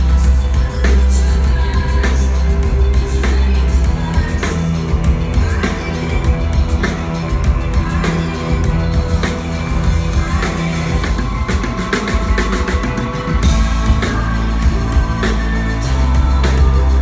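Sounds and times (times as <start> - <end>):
drum kit beat: 0.0 - 17.0
live rock band: 0.0 - 17.0
heavy bass notes: 12.2 - 17.0.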